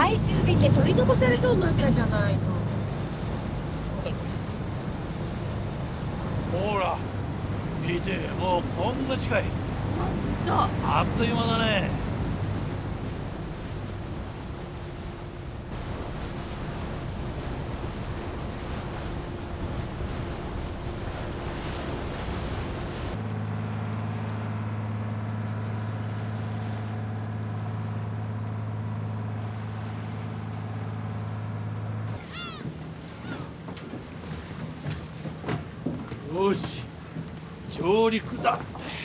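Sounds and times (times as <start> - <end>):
wind buffeting microphone: 0.0 - 23.2
wind and water rushing: 0.0 - 24.6, 25.7 - 39.0
ferry engine hum: 0.0 - 39.0.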